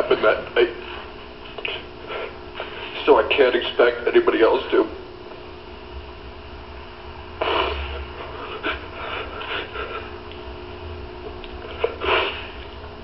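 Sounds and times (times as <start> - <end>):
low hum: 0.0 - 13.0
man crying and sniffling: 2.0 - 2.9, 7.4 - 10.3, 11.6 - 12.7.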